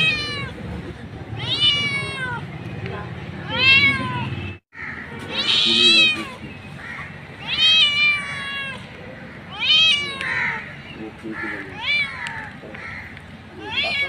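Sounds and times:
cat meowing: 0:00.0 - 0:00.6, 0:01.3 - 0:02.5, 0:03.4 - 0:04.4, 0:05.0 - 0:06.5, 0:07.4 - 0:10.6, 0:11.5 - 0:12.5, 0:13.6 - 0:14.0.

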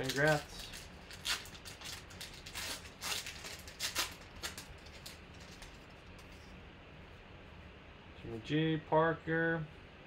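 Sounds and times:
foil wrapper crinkling: 0:00.0 - 0:06.4
cards rustling: 0:00.0 - 0:06.5.

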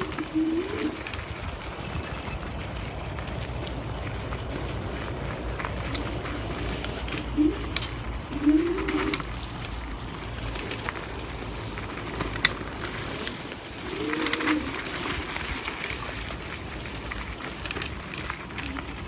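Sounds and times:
dove cooing: 0:00.0 - 0:03.7, 0:05.8 - 0:09.7, 0:10.4 - 0:16.3
electric scooter rumble: 0:00.0 - 0:19.0.

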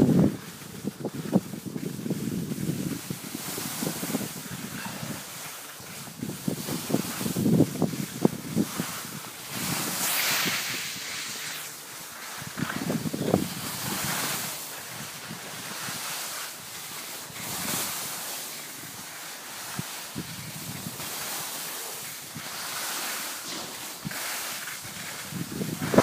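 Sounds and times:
wind buffeting microphone: 0:00.0 - 0:16.1, 0:23.5 - 0:26.0
skis scraping over snow: 0:00.0 - 0:26.0.

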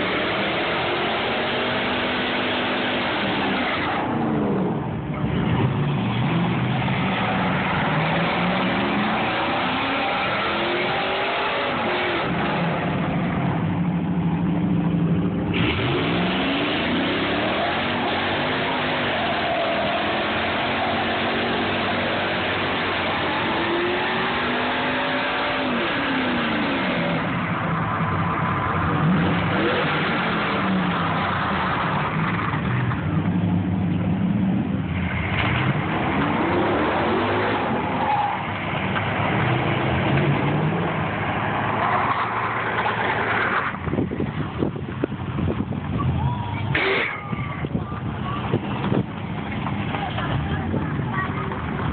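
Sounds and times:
truck engine revving: 0:00.0 - 0:51.9
tyres squealing on pavement: 0:05.2 - 0:13.3, 0:15.8 - 0:32.9, 0:35.0 - 0:39.6, 0:40.8 - 0:44.2, 0:45.8 - 0:51.9.

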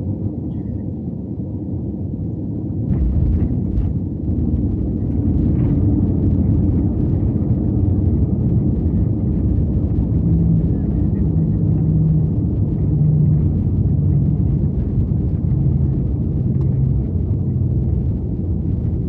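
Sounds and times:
airplane cabin engine rumble: 0:00.0 - 0:19.0
faint low hum: 0:02.9 - 0:19.0.

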